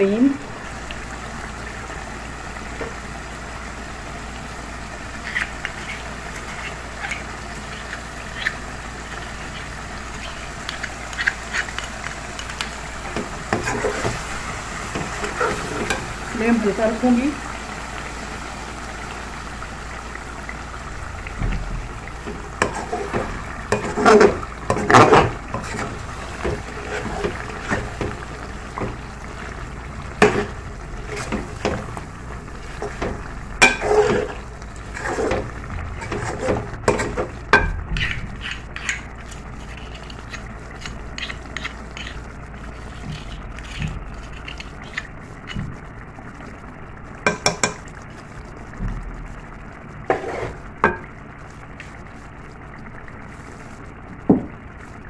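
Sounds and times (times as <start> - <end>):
metal spatula scraping a pot: 22.6 - 26.0, 33.6 - 35.4, 36.0 - 37.2, 38.0 - 45.1, 50.1 - 50.6.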